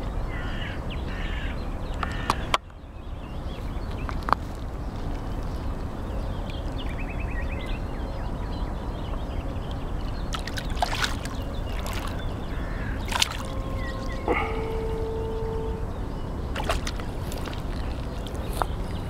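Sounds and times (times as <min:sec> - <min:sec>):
low rumble: 0:04.7 - 0:19.0
water sloshing: 0:09.1 - 0:19.0
sharp splashes: 0:10.3 - 0:15.1, 0:16.4 - 0:18.5.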